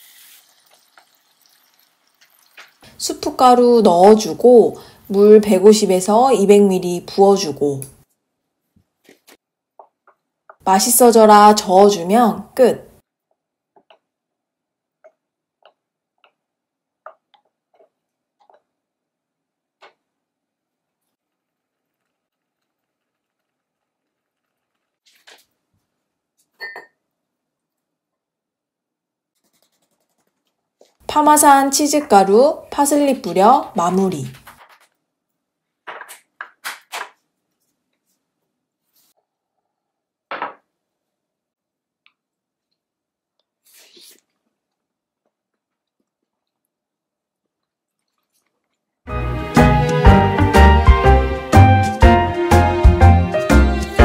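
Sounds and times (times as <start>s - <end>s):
ceramic bowl set on table: 26.4s - 27.3s.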